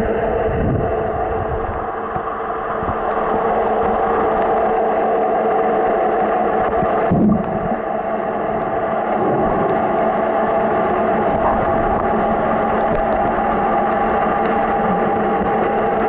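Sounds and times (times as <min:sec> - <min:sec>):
low underwater hum: 0:00.0 - 0:16.0
low whoosh: 0:07.1 - 0:07.9.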